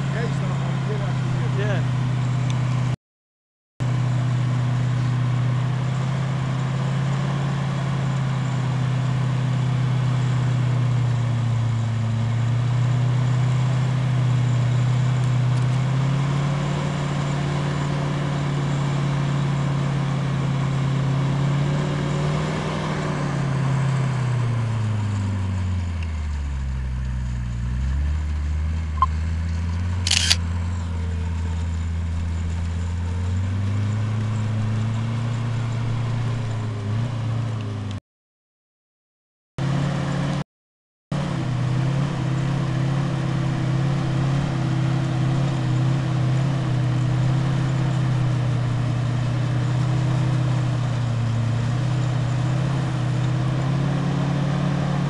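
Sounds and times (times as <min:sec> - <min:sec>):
car engine running under load: 0:00.0 - 0:03.0, 0:03.8 - 0:38.0, 0:41.1 - 0:55.0
sharp click: 0:30.0 - 0:30.4.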